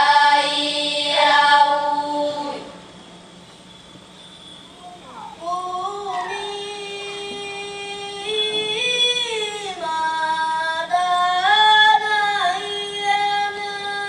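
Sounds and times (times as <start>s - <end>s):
children singing: 0.0s - 2.8s.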